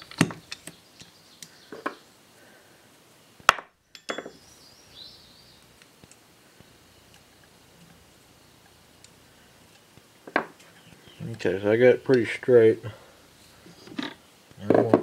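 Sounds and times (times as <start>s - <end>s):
metal tools clinking on metal: 3.9s - 4.4s
faint handling noise: 13.3s - 15.0s.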